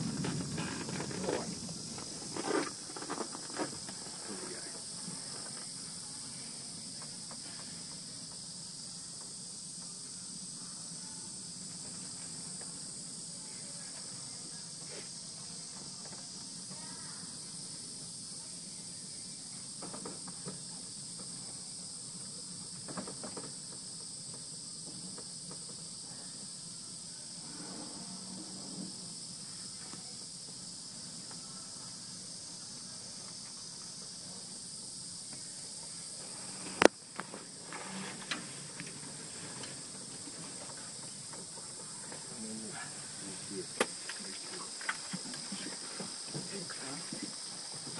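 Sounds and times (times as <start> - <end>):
faint low hum: 0.0 - 47.9
insect chirring: 0.0 - 47.9.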